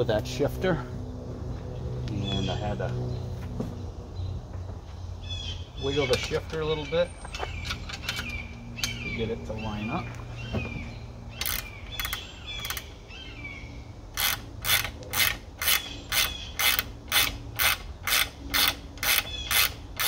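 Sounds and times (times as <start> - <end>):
ratchet wrench clicking: 11.4 - 12.9, 14.1 - 20.0.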